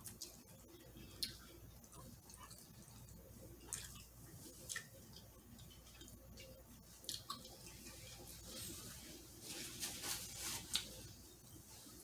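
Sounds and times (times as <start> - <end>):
person chewing: 0.0 - 8.3.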